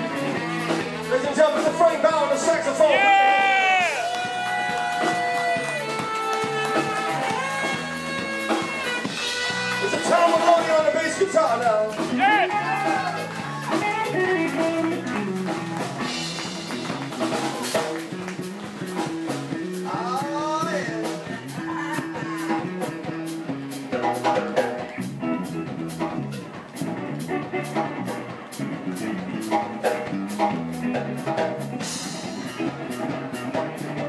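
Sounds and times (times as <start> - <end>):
bass guitar: 0.0 - 34.0
electric guitar bending notes: 2.4 - 19.9
drum kit cymbal beat: 3.5 - 34.0.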